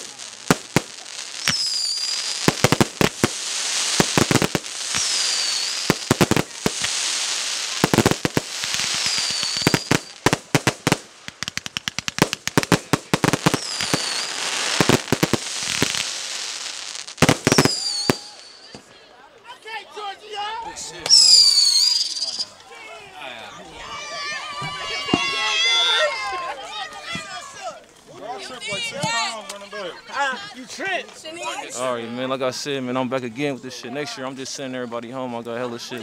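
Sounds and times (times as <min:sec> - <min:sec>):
fireworks bangs and crackling: 0:00.0 - 0:19.0, 0:21.0 - 0:22.5, 0:24.6 - 0:25.9
short high firework whistle: 0:01.4 - 0:02.4, 0:04.8 - 0:06.0, 0:08.8 - 0:10.2, 0:13.5 - 0:14.4, 0:17.5 - 0:18.8, 0:21.1 - 0:22.5.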